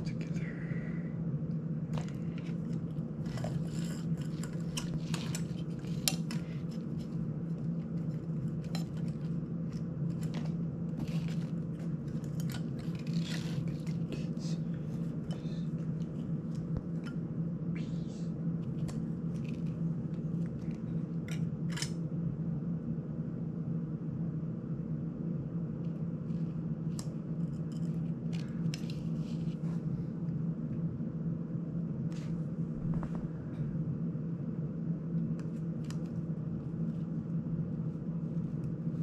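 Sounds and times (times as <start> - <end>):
steady low hum: 0.0 - 39.0
plastic parts clicking and rustling: 2.0 - 14.1.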